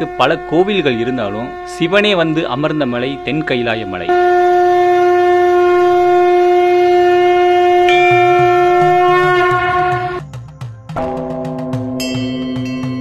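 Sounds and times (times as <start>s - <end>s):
conch shell blown: 0.0s - 10.2s.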